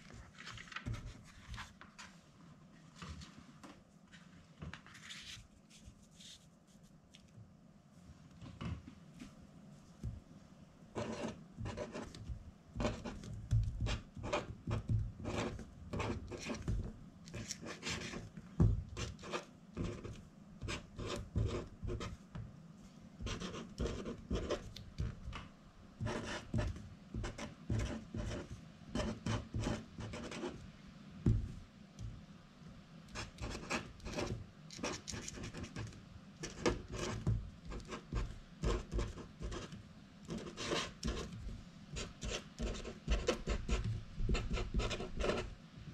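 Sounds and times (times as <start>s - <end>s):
marker pen scratching on paper: 0.8s - 1.8s, 11.0s - 18.3s, 18.9s - 22.2s, 23.2s - 25.4s, 26.0s - 30.6s, 33.1s - 45.5s.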